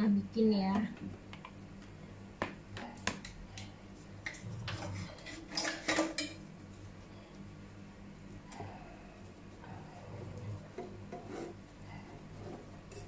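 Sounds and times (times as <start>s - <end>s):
steady low hum: 0.0s - 13.0s
dishes and utensils clinking: 4.3s - 6.4s.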